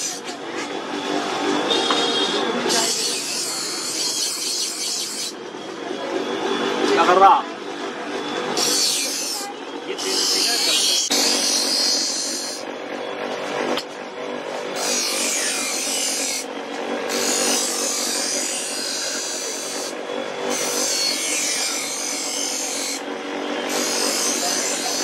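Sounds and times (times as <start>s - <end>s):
grinder motor hum: 0.0s - 25.0s
blade grinding on stone wheel: 2.6s - 5.4s, 8.4s - 25.0s.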